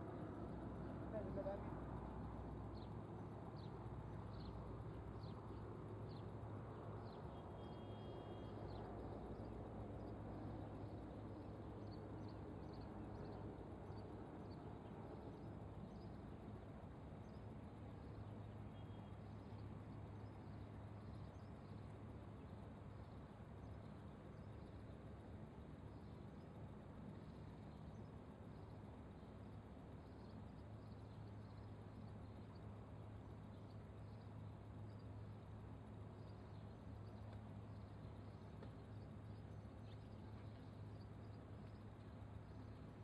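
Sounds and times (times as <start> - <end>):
low waterside hum: 0.0 - 43.0
small birds chirping: 2.7 - 6.3.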